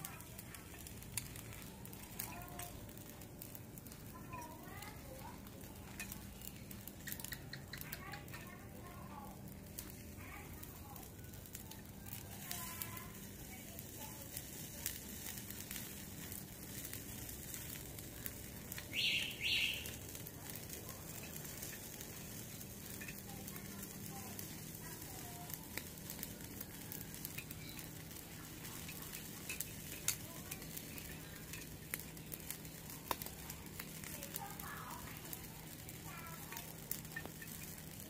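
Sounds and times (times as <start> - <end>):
crackles: 0.0 - 38.0
meat sizzling on a grill: 0.0 - 38.0
metal tongs clicking: 28.8 - 30.6.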